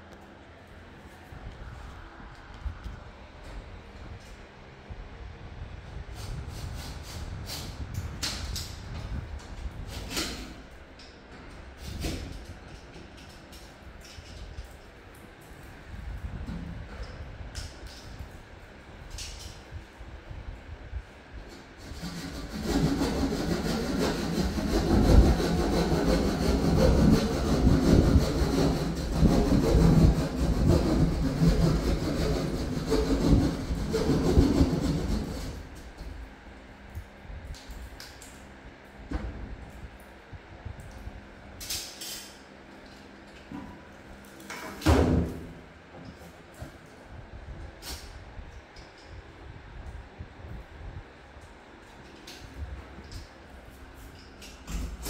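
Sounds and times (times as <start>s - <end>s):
saw rasping through ceiling: 21.5s - 36.1s.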